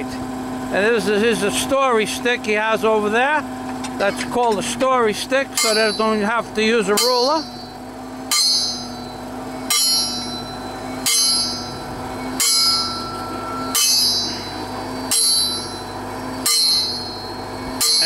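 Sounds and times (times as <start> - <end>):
engine humming: 0.0 - 18.0
heavy metallic clangs: 5.5 - 18.0.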